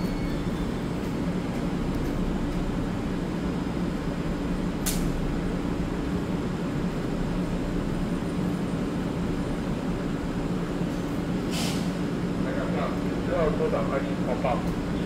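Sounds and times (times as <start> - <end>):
train equipment humming: 0.0 - 15.0
brief hiss: 11.4 - 12.0.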